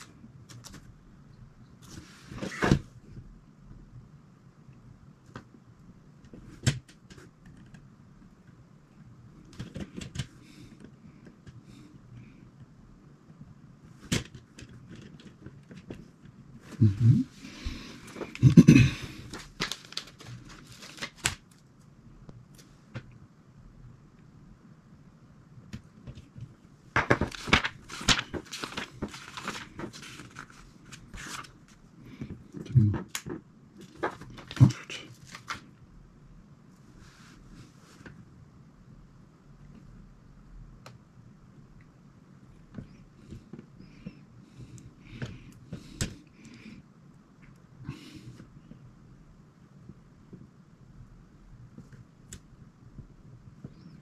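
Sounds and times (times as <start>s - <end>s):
paper crinkling and rustling: 19.1s - 21.7s, 27.0s - 35.7s.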